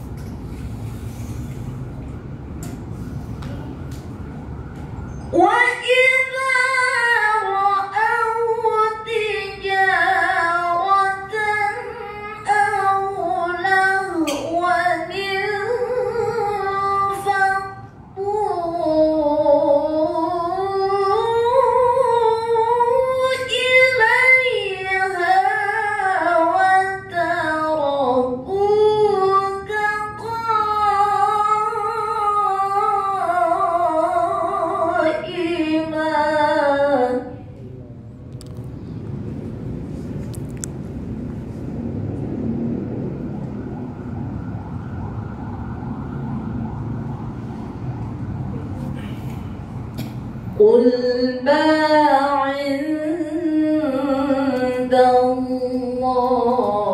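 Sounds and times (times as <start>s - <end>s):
woman reciting melodically: 5.3s - 37.5s, 50.6s - 56.9s.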